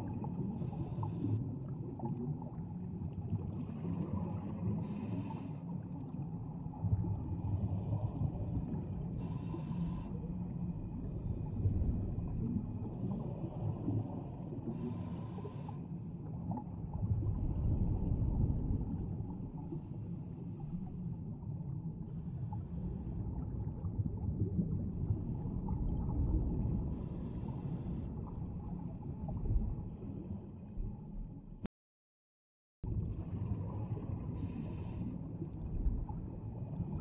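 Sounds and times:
low underwater rumble: 0:00.0 - 0:31.7, 0:32.8 - 0:37.0.

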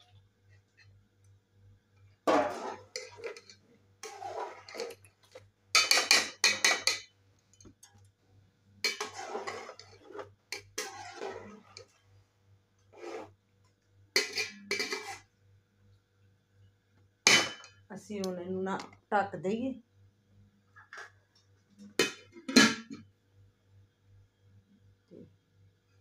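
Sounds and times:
metal spoon scraping a pot: 0:02.3 - 0:07.0, 0:08.8 - 0:12.0, 0:12.9 - 0:13.3, 0:14.2 - 0:15.3.

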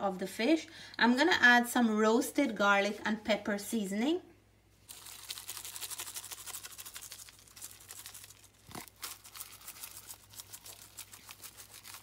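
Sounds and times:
seasoning shaker rattling: 0:04.9 - 0:12.0.

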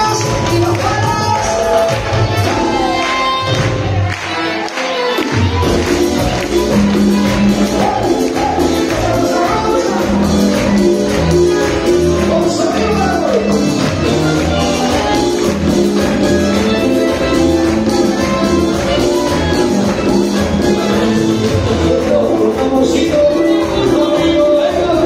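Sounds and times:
live band playing latin dance music: 0:00.0 - 0:25.0
lead singer singing: 0:20.8 - 0:25.0.

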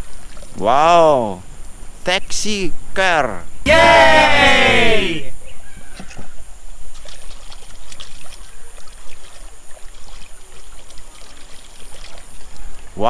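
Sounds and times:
water trickling: 0:06.8 - 0:13.0.

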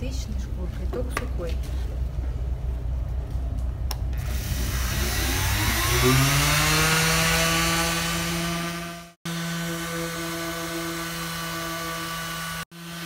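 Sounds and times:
power tool motor whining: 0:04.2 - 0:13.0.

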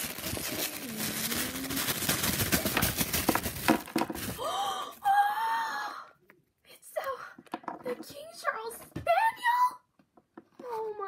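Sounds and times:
wrapping crinkling and rustling: 0:00.0 - 0:04.6
excited high vocal sound: 0:00.6 - 0:02.2.

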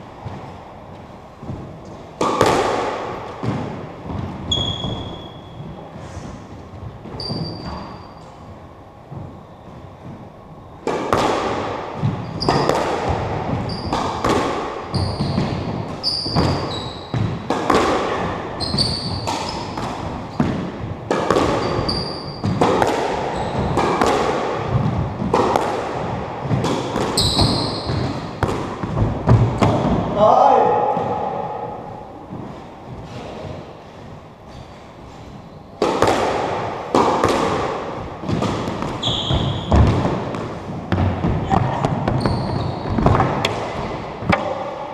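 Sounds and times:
squash ball hitting racket and wall: 0:00.0 - 0:44.9
shoes squeaking on wooden floor: 0:04.1 - 0:06.0, 0:06.9 - 0:08.4, 0:12.0 - 0:12.7, 0:13.5 - 0:14.1, 0:14.9 - 0:17.2, 0:18.6 - 0:20.6, 0:21.5 - 0:22.6, 0:23.3 - 0:23.8, 0:27.1 - 0:29.3, 0:38.7 - 0:43.3.

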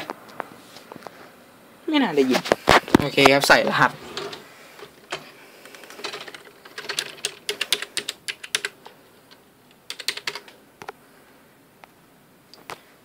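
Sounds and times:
typing on computer keyboard: 0:05.1 - 0:10.6.

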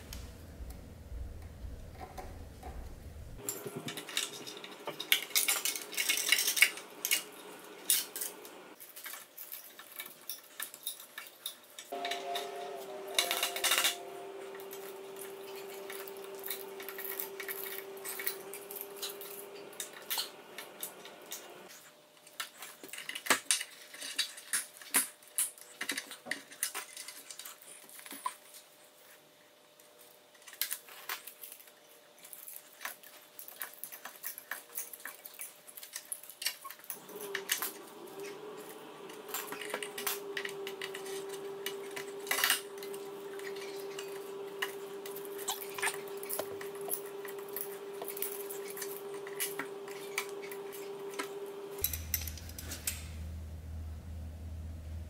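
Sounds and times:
metal tools clinking: 0:03.4 - 0:21.6, 0:33.5 - 0:53.3
steady tonal hum: 0:11.9 - 0:21.7, 0:37.0 - 0:55.0.

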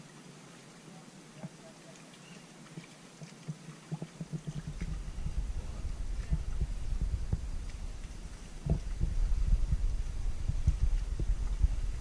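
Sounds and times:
paddles knocking on canoe hull: 0:02.8 - 0:12.0
low rumble: 0:04.3 - 0:12.0.

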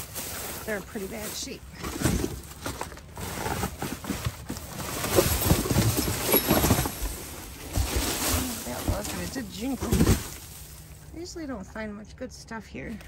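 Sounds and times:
rustling cardboard and plastic bags: 0:00.0 - 0:11.5
knocks and bumps: 0:01.8 - 0:10.8.

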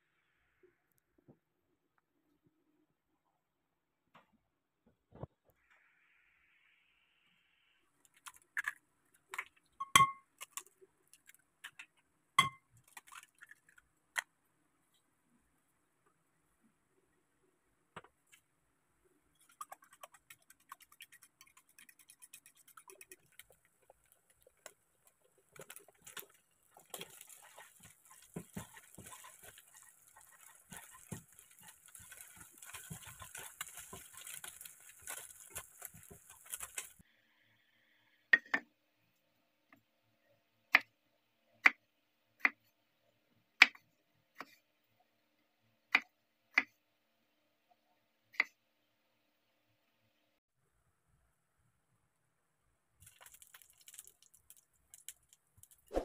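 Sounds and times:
spatula scrambling eggs: 0:19.2 - 0:37.0
eggs sizzling in frying pan: 0:19.2 - 0:37.1, 0:53.0 - 0:56.0.

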